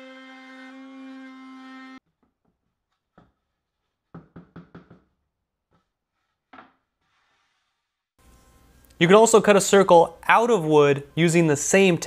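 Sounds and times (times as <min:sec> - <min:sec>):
wooden knocks and clatter: 0:04.1 - 0:05.1.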